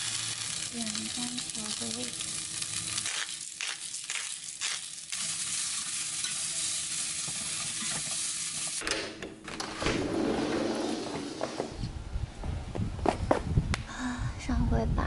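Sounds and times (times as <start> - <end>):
vegetables sizzling in a skillet: 0.0 - 8.8.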